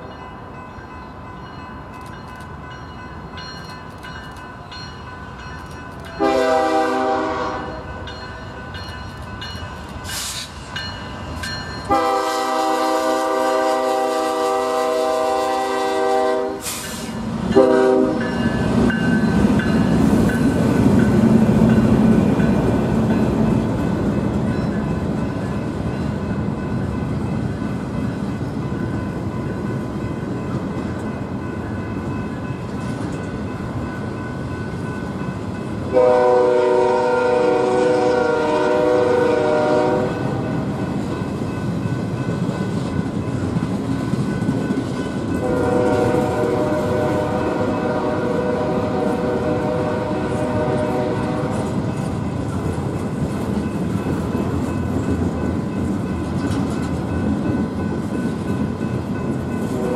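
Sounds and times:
freight train rumble and clatter: 0.0s - 59.9s
train air horn: 6.2s - 7.9s, 11.9s - 18.4s, 35.9s - 40.4s, 45.4s - 51.8s, 59.7s - 59.9s.

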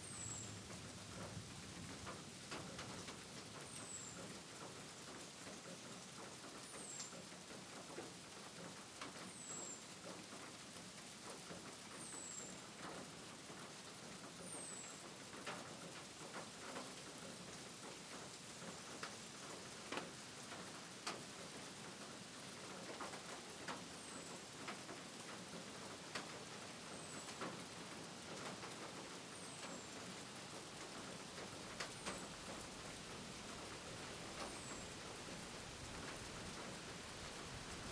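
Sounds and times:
light rain hissing: 0.0s - 37.9s
drip ticks: 2.0s - 4.8s.

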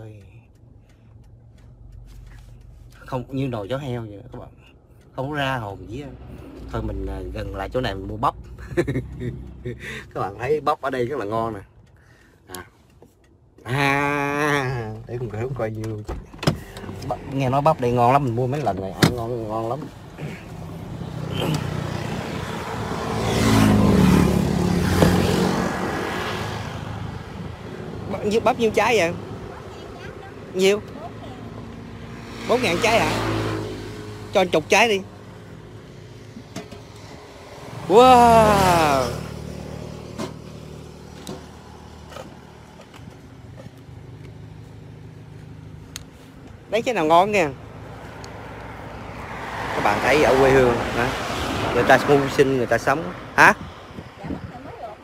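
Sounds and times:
car engine idling: 0.0s - 23.0s
car engine hum: 0.0s - 55.0s
road noise: 0.0s - 55.0s
vehicle passing: 16.6s - 54.9s.

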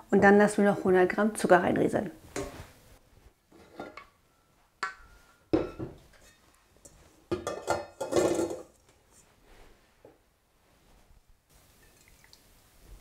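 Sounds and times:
metal bowls clanking: 3.6s - 6.4s, 7.3s - 8.8s.

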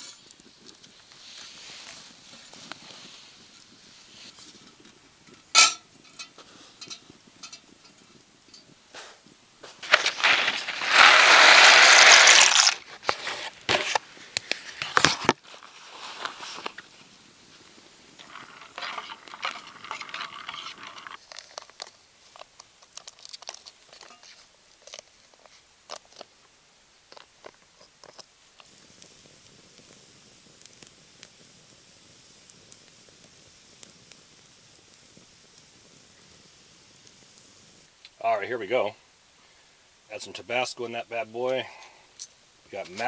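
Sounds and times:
soft crinkles and scrapes: 0.0s - 26.3s, 27.1s - 28.8s
campfire crackling: 0.0s - 43.0s
loud crinkling and rustling: 9.6s - 26.3s.

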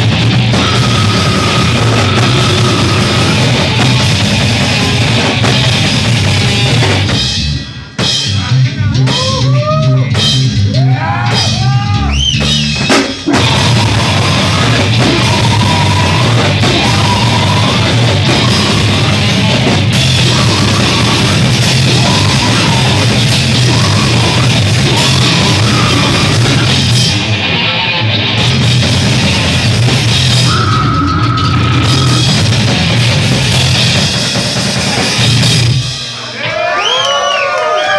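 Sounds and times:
electric guitar: 0.0s - 7.9s, 12.8s - 36.1s
drum kit: 0.0s - 36.7s.

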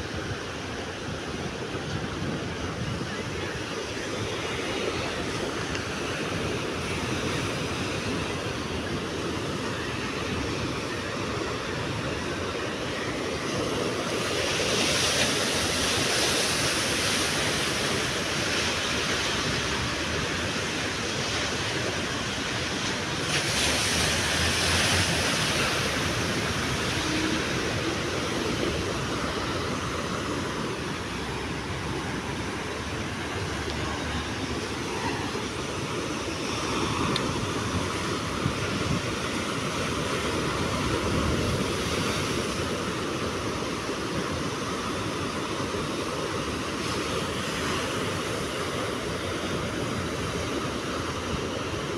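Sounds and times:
surf breaking on rocky shore: 0.0s - 51.9s.

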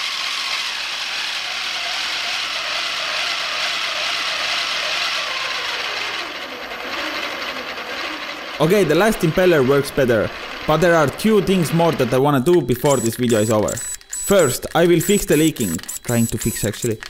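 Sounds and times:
motor driven pump gear whir: 0.2s - 17.0s
faint falling whine: 5.5s - 17.0s.

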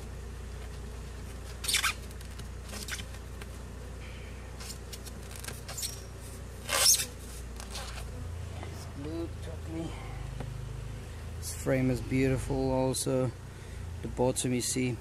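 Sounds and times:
steady low hum: 0.0s - 15.0s
wooden frame scraping hive: 0.0s - 15.0s.

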